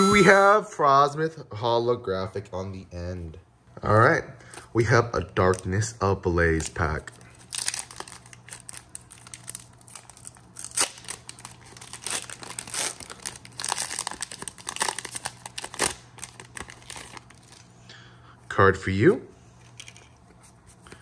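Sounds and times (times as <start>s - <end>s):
foil wrapper crinkling and tearing: 7.2s - 17.7s.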